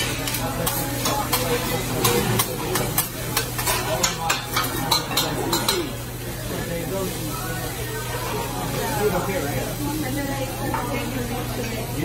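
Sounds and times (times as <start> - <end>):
metal spatulas scraping griddle: 0.0 - 5.8
fried rice sizzling: 0.0 - 12.0.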